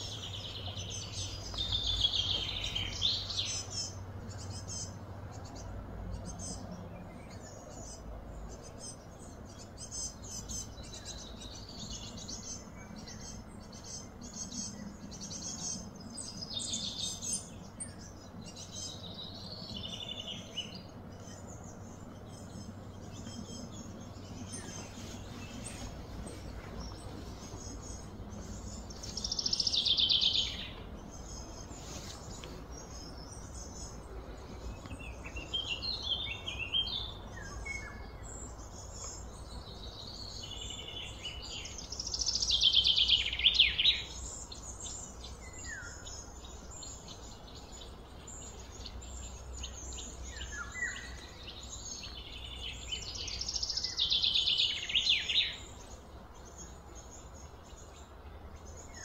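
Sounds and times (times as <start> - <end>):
songbird singing falling notes: 0.0 - 4.7
low background hum: 0.0 - 59.0
soft bird chirps: 0.0 - 59.0.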